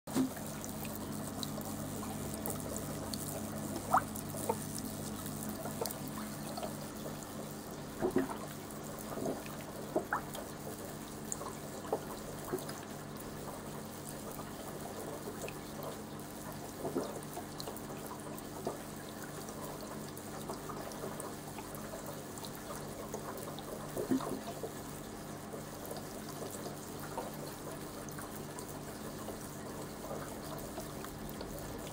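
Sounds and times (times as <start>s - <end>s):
mist maker humming: 0.1s - 9.9s
water dripping: 0.1s - 10.6s.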